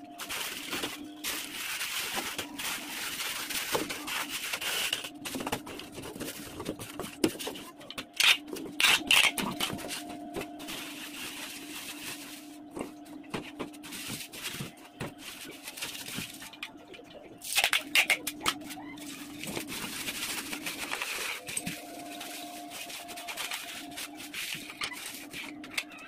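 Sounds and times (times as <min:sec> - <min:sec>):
bubble wrap crinkling: 0:00.0 - 0:16.6, 0:17.5 - 0:26.0
packing tape ripping: 0:08.2 - 0:09.7.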